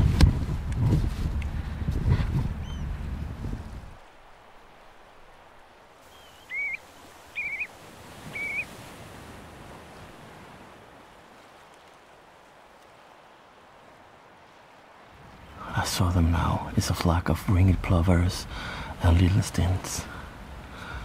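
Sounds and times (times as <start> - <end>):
wind and water hiss: 0.0 - 21.0
shorebird whistled calls: 2.6 - 2.9, 6.0 - 8.7.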